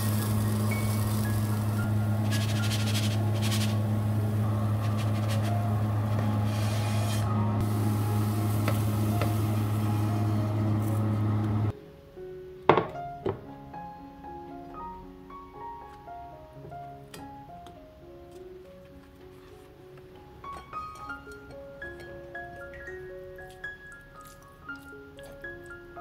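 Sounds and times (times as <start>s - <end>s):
electric hob humming: 0.0s - 11.7s
spatula scraping a pan: 0.2s - 4.0s, 4.7s - 7.4s.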